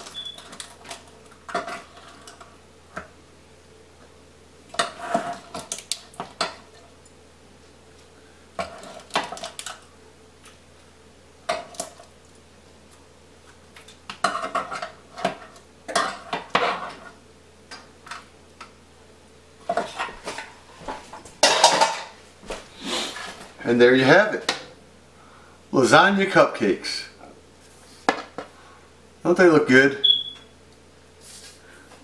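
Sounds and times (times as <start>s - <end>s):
metal pans clinking and scraping: 21.4s - 22.2s.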